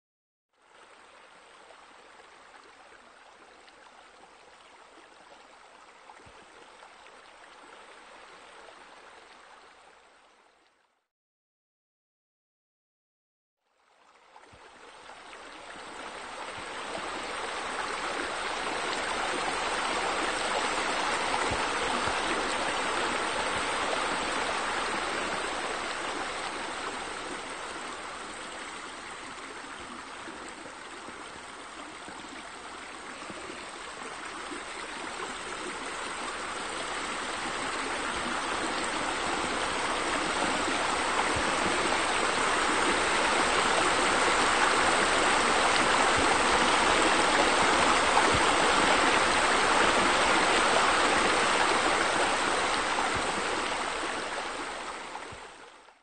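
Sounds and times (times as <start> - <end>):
water rushing from waterfall: 15.6 - 55.6.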